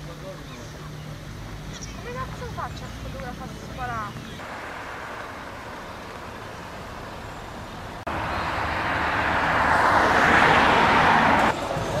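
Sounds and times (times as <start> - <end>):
motor vehicle approaching: 0.0 - 12.0
road traffic noise: 0.0 - 12.0.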